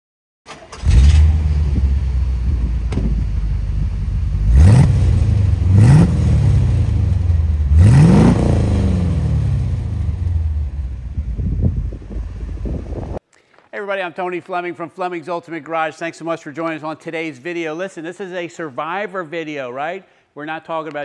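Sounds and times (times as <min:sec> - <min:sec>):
car engine idling and revving: 0:00.7 - 0:13.2.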